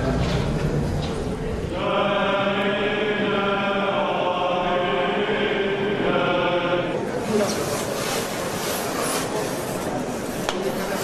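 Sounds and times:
voices chanting long notes: 0:01.7 - 0:07.1.

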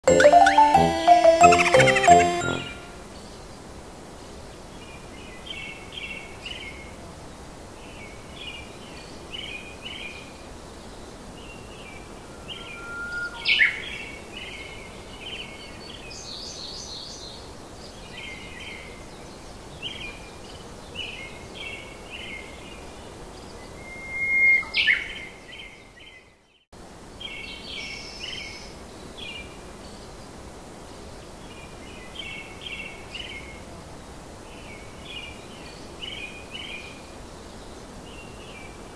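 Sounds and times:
loud rising bird chirps: 0:11.6 - 0:14.0.

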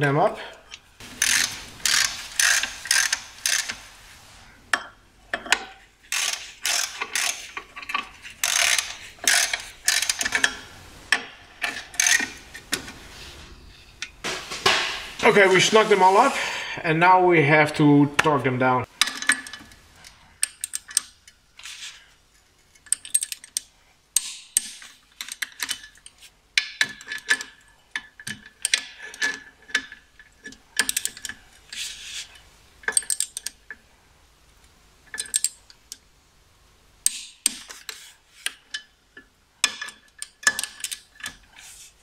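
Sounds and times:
torque wrench clicking: 0:01.2 - 0:03.8, 0:06.1 - 0:10.6, 0:11.6 - 0:12.4.

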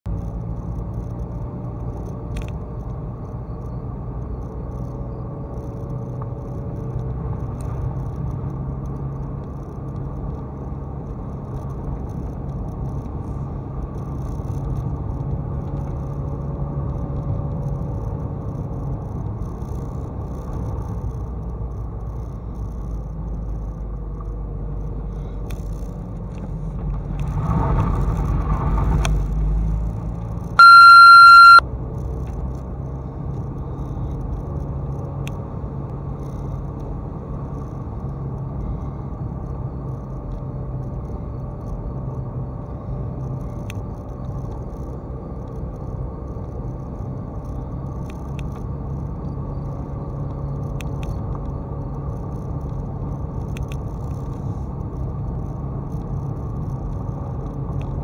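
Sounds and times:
car engine and tyre rumble: 0:00.0 - 0:58.0
faint wavering whine: 0:30.6 - 0:31.6.

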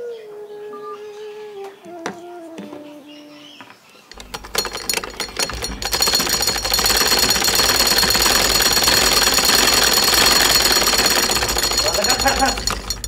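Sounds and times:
treadle sewing machine clatter: 0:04.1 - 0:13.0.

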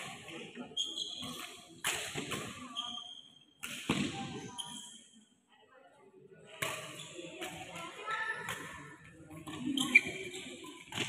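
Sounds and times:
racket hitting shuttlecock: 0:01.2 - 0:02.6, 0:08.4 - 0:08.8.

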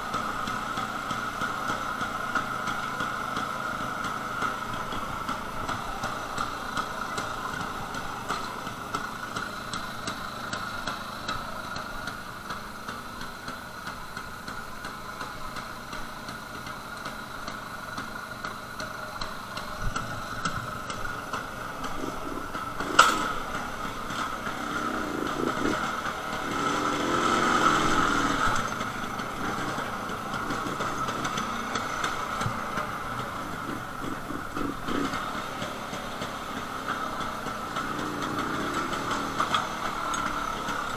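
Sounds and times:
two-stroke motorcycle engine: 0:00.0 - 0:40.9.

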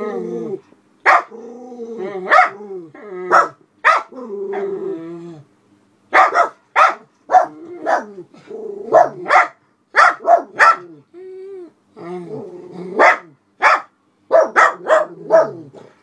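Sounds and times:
small dogs barking: 0:01.0 - 0:01.4, 0:02.2 - 0:02.6, 0:03.3 - 0:04.7, 0:06.1 - 0:08.2, 0:08.9 - 0:11.0, 0:13.0 - 0:16.0.

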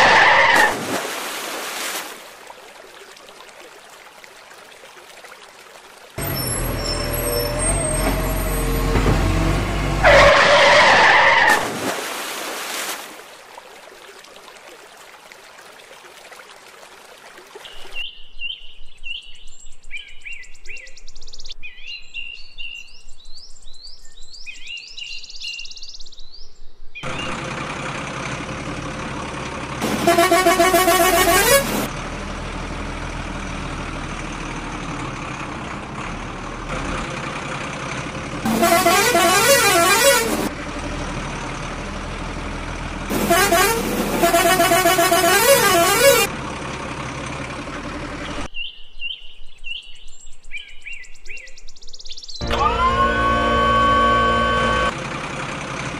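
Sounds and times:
truck horn blast: 0:06.2 - 0:10.6, 0:29.8 - 0:31.9, 0:38.5 - 0:40.5, 0:43.1 - 0:46.3, 0:52.4 - 0:55.0
truck engine running: 0:06.2 - 0:10.8, 0:27.0 - 0:48.5, 0:52.4 - 0:55.9.

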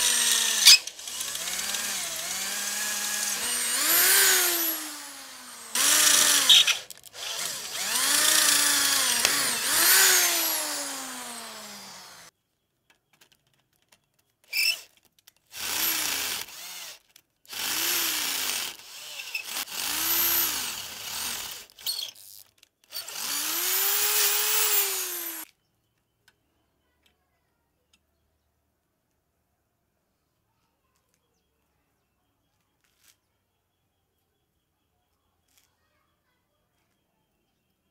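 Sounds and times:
electric drill boring into steel: 0:00.0 - 0:12.3, 0:15.5 - 0:25.4.

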